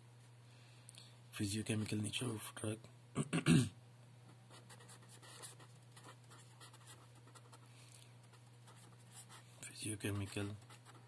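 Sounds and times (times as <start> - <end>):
steady low hum: 0.0 - 11.0
marker pen scratching on paper: 4.5 - 7.6, 8.3 - 9.4, 10.0 - 11.0.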